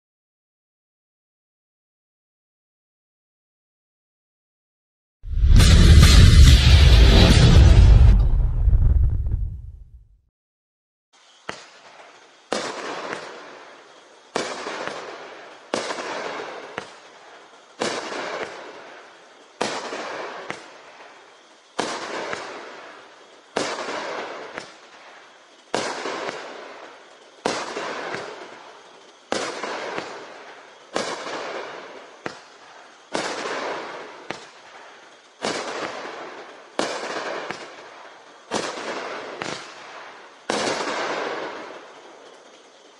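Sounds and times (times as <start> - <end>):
firework shells bursting: 11.2 - 42.9.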